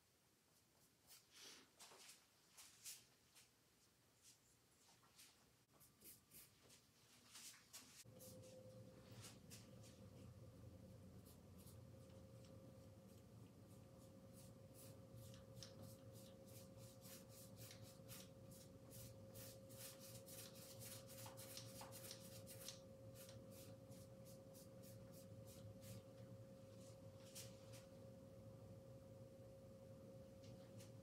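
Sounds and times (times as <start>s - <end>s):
faint hum tone: 5.7s - 31.0s
paintbrush strokes on canvas: 26.7s - 28.0s.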